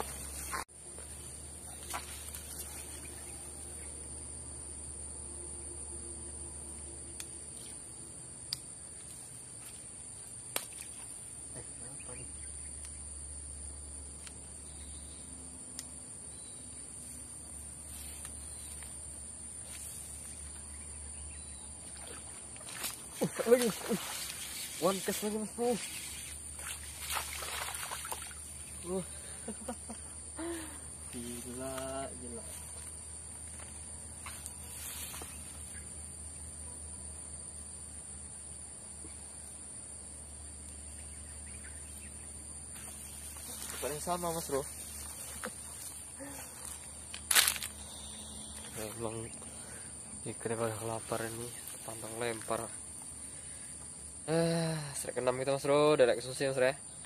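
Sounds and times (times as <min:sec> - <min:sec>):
insects chirring: 0:00.0 - 0:57.0.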